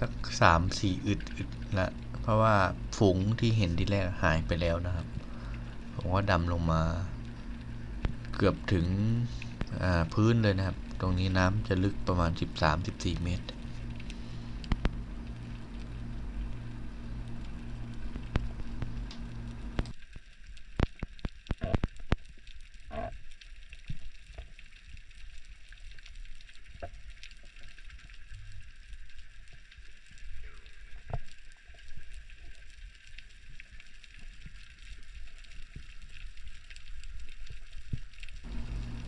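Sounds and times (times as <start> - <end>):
fine underwater crackling: 0.0 - 39.0
sharp underwater clicks: 7.2 - 11.0, 12.4 - 20.0, 20.6 - 23.2.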